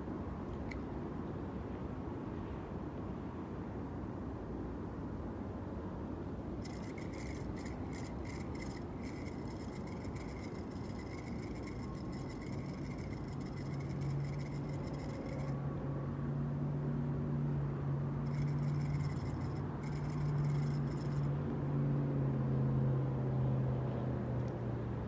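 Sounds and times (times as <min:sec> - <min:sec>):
faint high wavering whine: 0:00.0 - 0:01.0, 0:06.5 - 0:16.7, 0:17.8 - 0:21.7
low motor drone: 0:06.6 - 0:16.5, 0:18.0 - 0:22.1.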